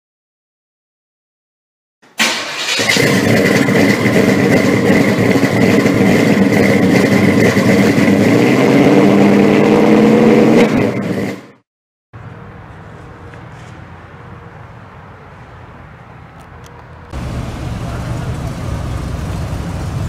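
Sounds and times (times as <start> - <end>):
car engine running: 2.9 - 9.4, 17.1 - 20.0.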